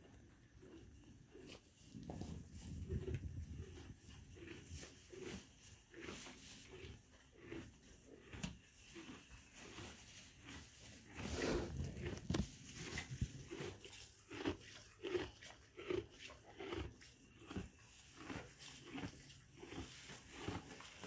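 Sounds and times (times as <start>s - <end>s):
donkey chewing: 0.0s - 21.0s
dry hay rustling: 1.4s - 7.0s, 8.3s - 14.8s, 17.9s - 21.0s.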